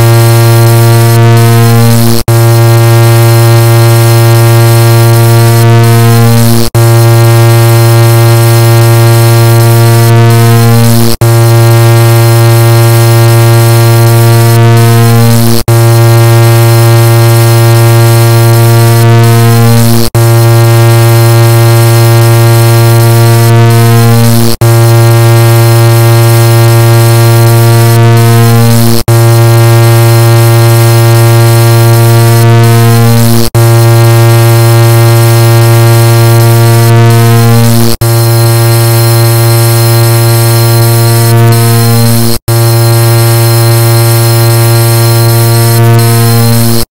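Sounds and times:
distorted layered car horn: 0.0 - 46.9
car horn blaring: 31.6 - 46.9.

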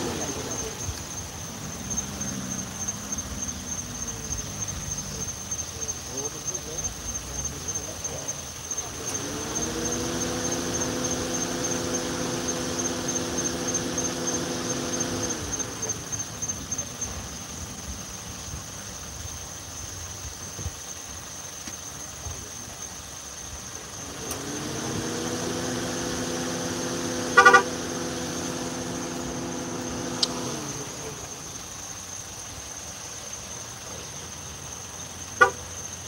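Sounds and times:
insects chirping: 0.0 - 36.0
motor humming: 8.6 - 17.2, 24.0 - 31.8
loud toot-like blast: 27.2 - 28.0, 35.4 - 35.6.

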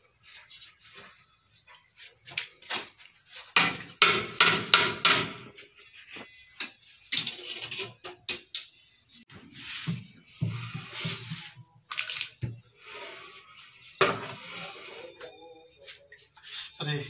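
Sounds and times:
ladle scraping a cooking pot: 5.5 - 8.3, 9.3 - 11.7, 12.7 - 15.3.

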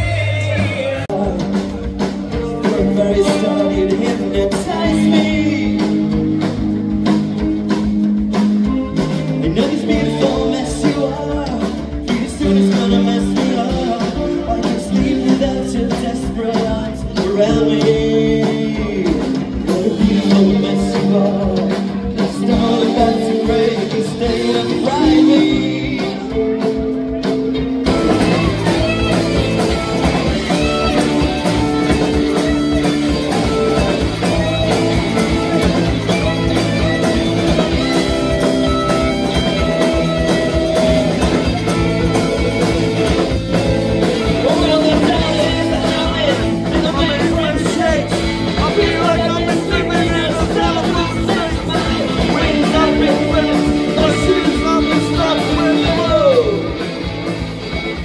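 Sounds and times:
person singing: 0.0 - 6.6, 8.9 - 56.9
bass guitar: 0.0 - 58.0
drums: 0.0 - 58.0
electric guitar: 0.0 - 58.0.

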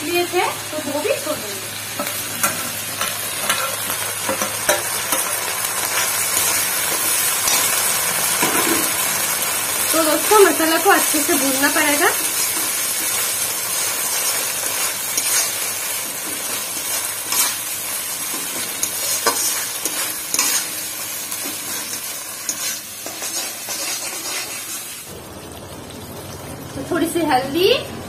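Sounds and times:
paste sizzling in oil: 0.0 - 25.1
metal spatula scraping pan: 18.3 - 20.8, 21.4 - 24.9.

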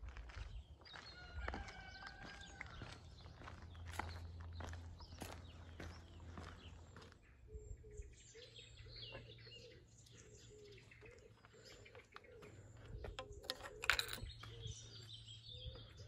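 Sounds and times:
birds chirping and calling: 3.3 - 16.0.

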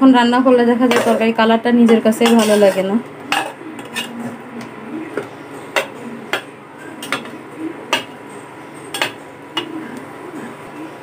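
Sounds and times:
metal spatula clinking against pot: 1.9 - 4.1, 8.9 - 9.7.

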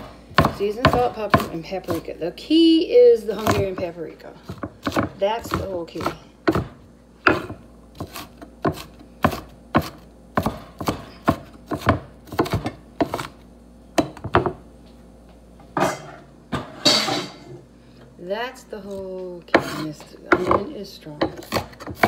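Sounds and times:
knife chopping on wooden board: 0.0 - 2.0, 3.3 - 13.4, 14.0 - 14.6, 19.5 - 22.0.

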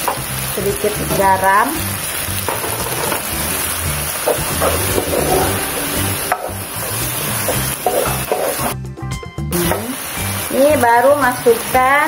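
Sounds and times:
noodles sizzling in a wok: 0.0 - 8.8, 9.6 - 12.0
spatula scraping a pan: 4.2 - 8.8.

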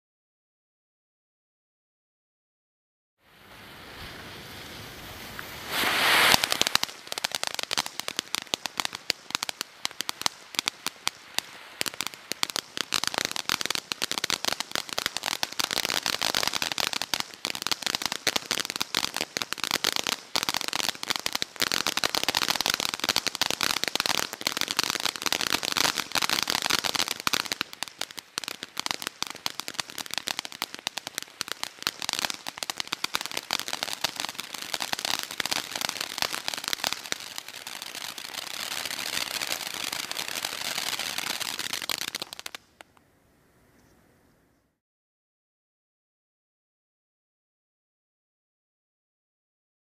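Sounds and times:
firework fountain hiss: 3.2 - 42.9
firework fountain crackling: 3.3 - 43.0.

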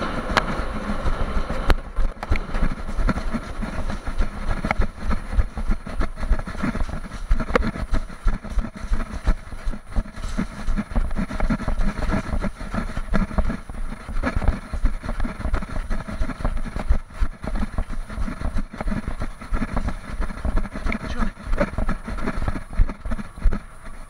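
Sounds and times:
train wheels rumbling in tunnel: 0.0 - 24.0.

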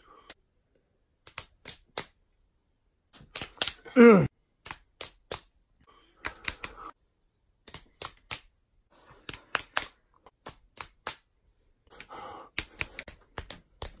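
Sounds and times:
fists smacking into palms: 9.1 - 11.3, 11.9 - 14.0.

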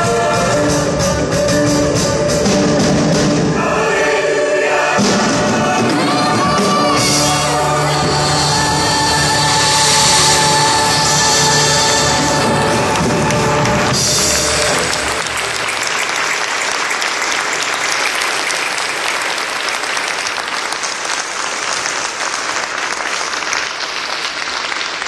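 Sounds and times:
audience applauding: 10.1 - 25.0.

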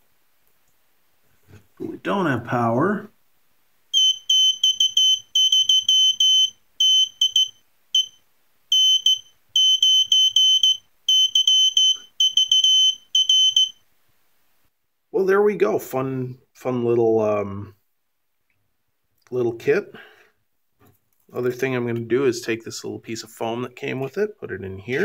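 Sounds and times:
morse code beeps: 4.0 - 13.7.

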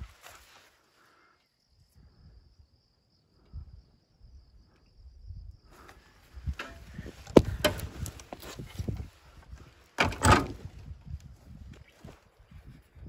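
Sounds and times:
rustling through grass: 0.0 - 0.8
cricket trilling: 0.0 - 13.0.

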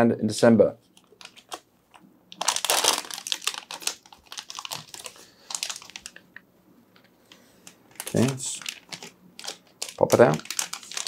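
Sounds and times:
plastic bag crinkling: 2.3 - 6.4, 7.6 - 11.0.

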